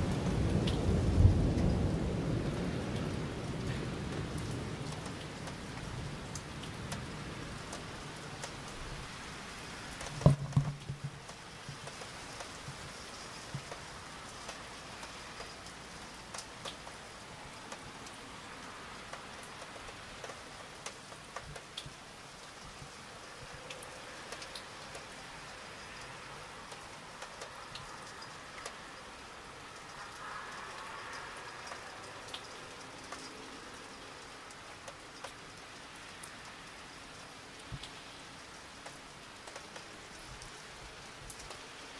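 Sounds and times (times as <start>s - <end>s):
thunder rumble: 0.0s - 7.4s
steady rain: 0.0s - 41.9s
drops ticking on a surface: 10.0s - 15.6s.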